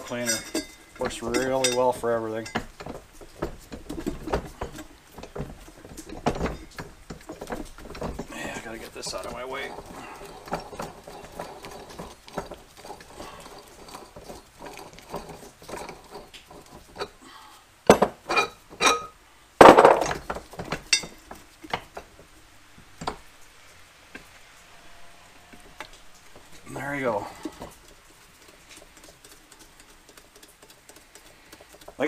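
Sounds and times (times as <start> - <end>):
metal tools clinking and knocking: 0.0 - 17.2, 17.9 - 22.3.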